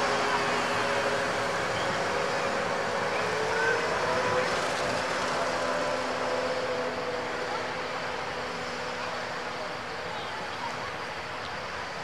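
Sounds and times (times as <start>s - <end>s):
vehicle engines droning: 0.0s - 12.0s.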